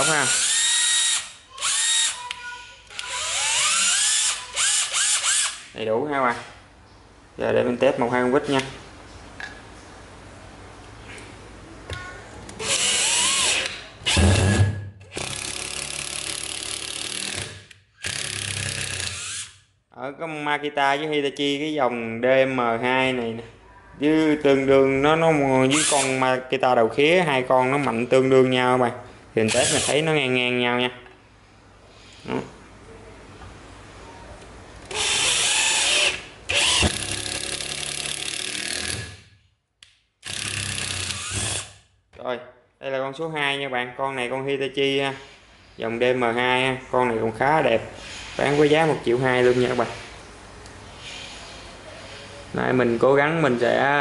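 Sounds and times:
impact driver driving screw into wood: 0:12.6 - 0:19.5, 0:34.9 - 0:39.3, 0:40.2 - 0:41.8.

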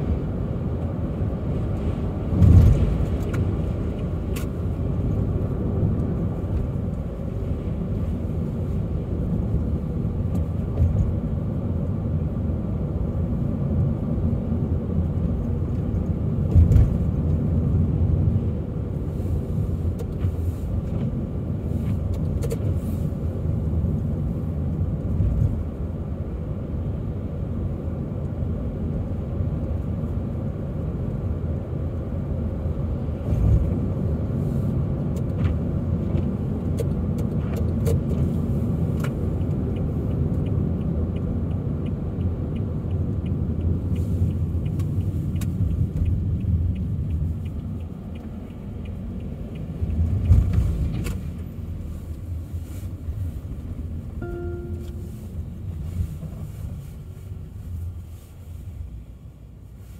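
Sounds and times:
car road and engine rumble: 0:00.0 - 0:59.9
evenly spaced ticks: 0:39.3 - 0:50.8.

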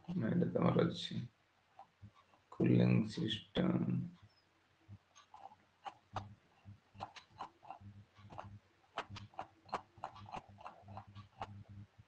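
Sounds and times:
computer mouse clicking: 0:05.1 - 0:11.9.

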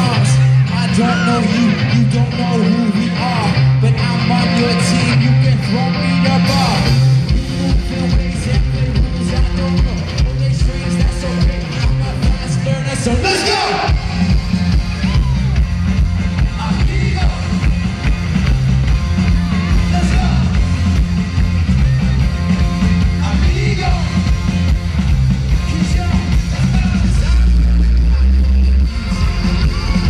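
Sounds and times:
person singing: 0:00.0 - 0:14.2
electric guitar: 0:00.0 - 0:30.0
heavy bass: 0:00.0 - 0:30.0.

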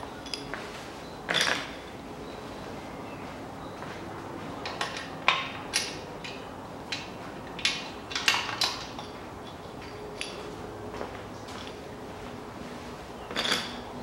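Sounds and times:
metallic clinks of bearing caps: 0:00.2 - 0:00.6, 0:01.3 - 0:02.0, 0:04.6 - 0:10.5, 0:13.3 - 0:13.9.

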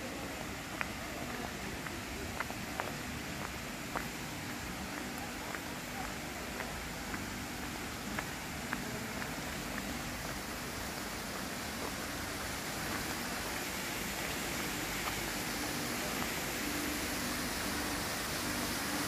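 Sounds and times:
rain hissing: 0:04.0 - 0:19.0.

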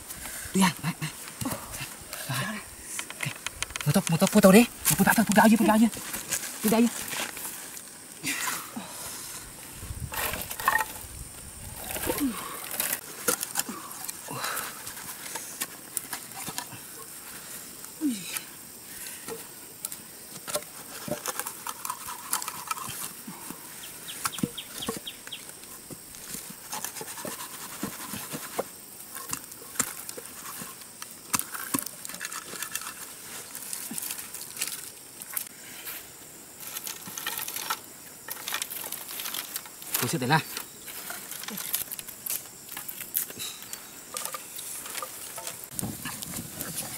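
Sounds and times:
sticks being handled: 0:01.2 - 0:08.6, 0:10.1 - 0:11.1, 0:19.2 - 0:36.0, 0:36.6 - 0:46.9.

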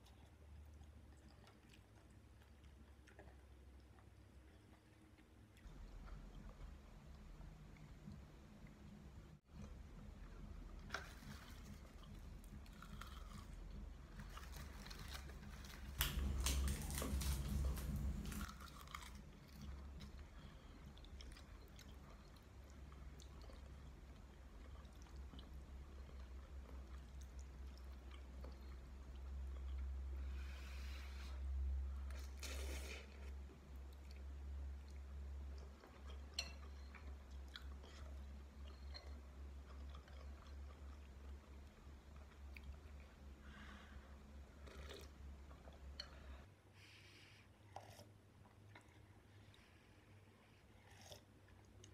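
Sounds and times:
chewing: 0:00.0 - 0:08.9, 0:09.5 - 0:31.3, 0:31.9 - 0:46.5, 0:47.6 - 0:49.8, 0:50.7 - 0:51.9
steady low hum: 0:00.0 - 0:51.9
slurping noodles: 0:32.2 - 0:33.4.

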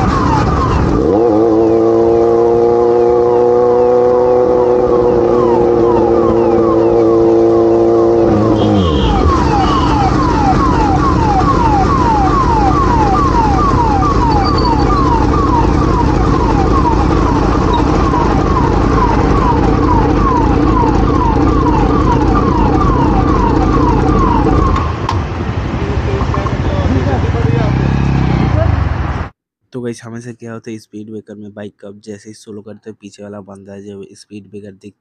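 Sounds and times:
police siren sweeping: 0:00.0 - 0:25.1
motorcycle road noise: 0:00.0 - 0:29.3.

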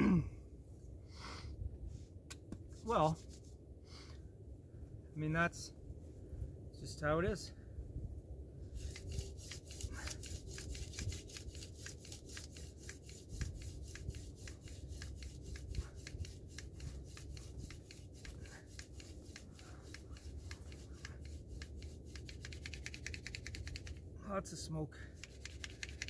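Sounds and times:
hand drill rubbing: 0:08.8 - 0:24.0, 0:25.2 - 0:26.0.

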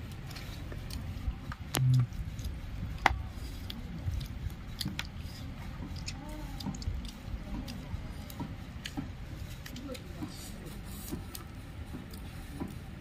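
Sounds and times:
meat pulled by hand: 0:00.0 - 0:13.0
chewing: 0:00.1 - 0:12.8
brief low hum: 0:01.7 - 0:02.2.

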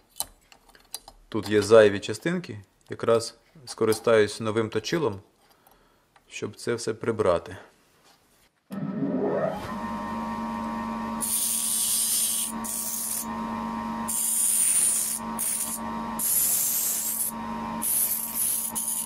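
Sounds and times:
bench grinder humming: 0:08.8 - 0:19.0
metal grinding hiss: 0:11.2 - 0:13.3, 0:14.1 - 0:19.0.

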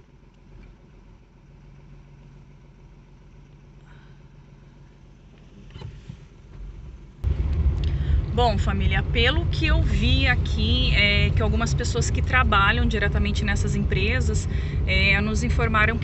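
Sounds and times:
car engine and road hum: 0:00.0 - 0:16.0
loud low rumble: 0:07.2 - 0:16.0.

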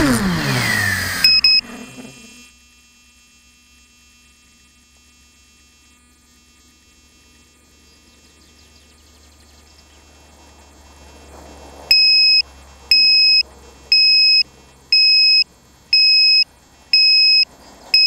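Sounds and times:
drone motors whining down: 0:00.0 - 0:18.0
short high electronic beeps: 0:01.2 - 0:01.7, 0:11.9 - 0:16.4, 0:17.0 - 0:17.4
faint electrical hum: 0:01.5 - 0:18.0.

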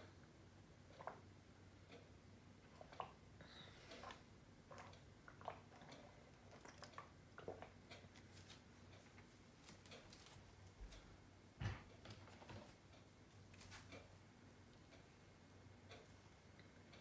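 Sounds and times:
faint clicks and rustles: 0:07.9 - 0:11.1.

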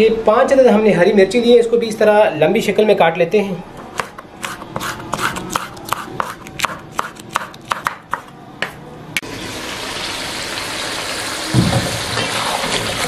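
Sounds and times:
knife slicing on cutting board: 0:03.9 - 0:08.3
gravy sizzling in a wok: 0:09.2 - 0:13.0.

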